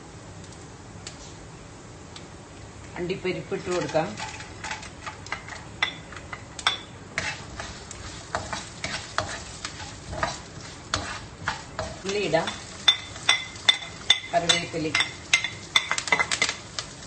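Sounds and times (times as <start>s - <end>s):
nuts sizzling in oil: 3.0s - 17.0s
spatula scraping a pan: 3.7s - 5.7s, 7.1s - 16.5s.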